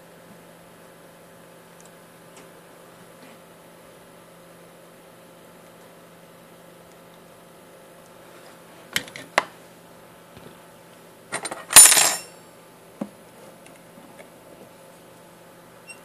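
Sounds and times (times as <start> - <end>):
metal tools clattering: 11.3 - 12.3.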